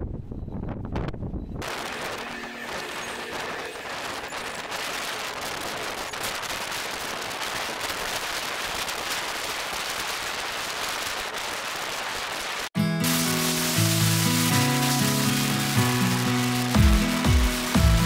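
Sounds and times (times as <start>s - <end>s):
wind buffeting microphone: 0.0s - 7.8s.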